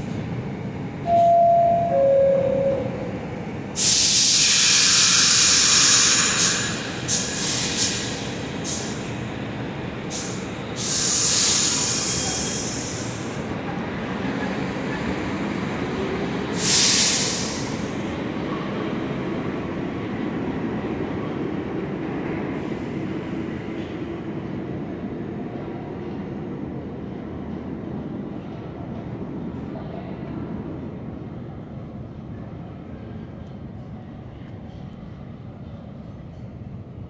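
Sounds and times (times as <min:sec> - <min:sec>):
train motor tone: 0:01.0 - 0:06.2
compressed air hissing: 0:03.8 - 0:09.0, 0:10.1 - 0:13.4, 0:16.6 - 0:18.0.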